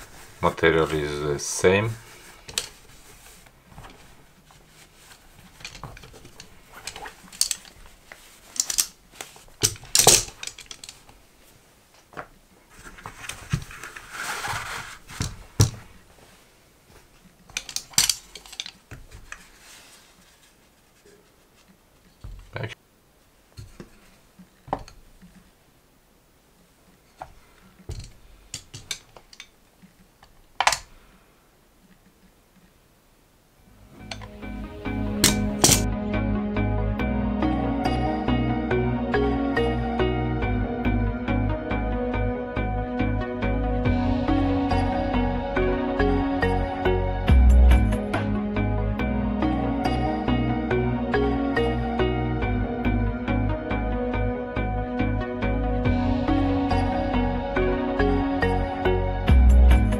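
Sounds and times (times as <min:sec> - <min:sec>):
clicks and clacks of parts: 0:02.5 - 0:02.8, 0:05.6 - 0:11.2, 0:17.4 - 0:19.4, 0:27.2 - 0:30.9, 0:35.2 - 0:35.9.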